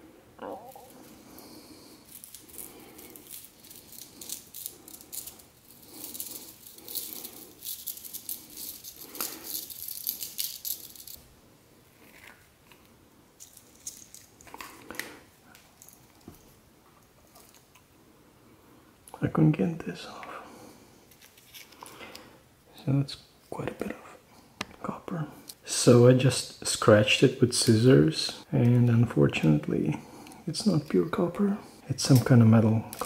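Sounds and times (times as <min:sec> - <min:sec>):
crackling rattle of wire: 0:00.6 - 0:11.2.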